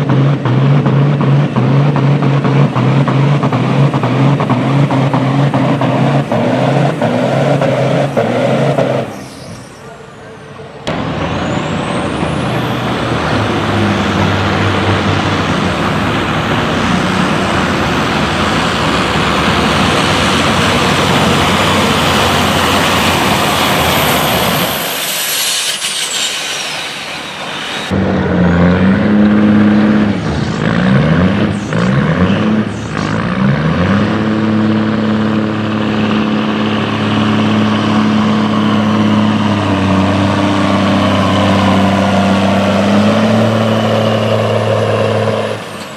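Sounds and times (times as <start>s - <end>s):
diesel truck engine at full throttle: 0.0s - 45.9s
truck engine revving: 0.0s - 45.9s
high engine whistle: 22.3s - 28.6s.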